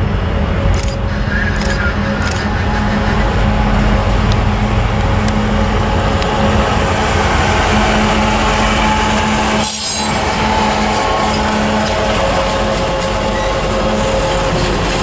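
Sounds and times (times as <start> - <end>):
freight locomotives passing: 0.0 - 15.0.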